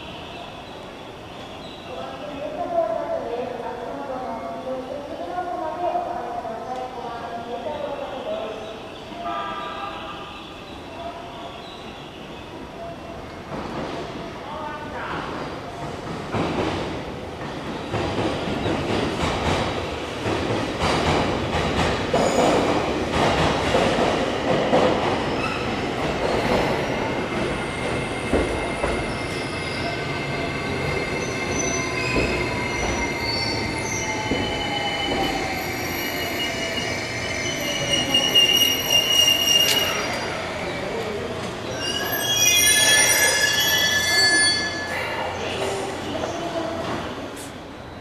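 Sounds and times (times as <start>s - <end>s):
train wheels rumbling and clattering: 15.0s - 42.1s.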